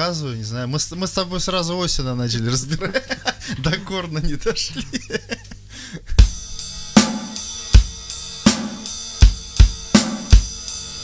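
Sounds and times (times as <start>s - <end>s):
bass drum: 6.2s - 11.0s
ringing cymbal pattern: 6.2s - 11.0s
snare drum: 7.0s - 10.5s.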